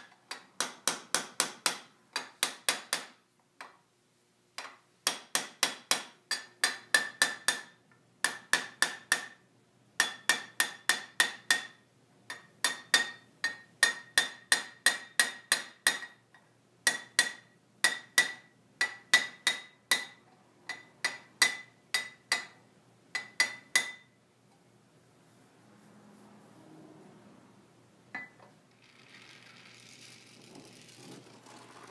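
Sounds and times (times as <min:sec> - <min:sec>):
hammer tapping copper: 0:00.0 - 0:03.8, 0:04.6 - 0:09.4, 0:10.0 - 0:24.2.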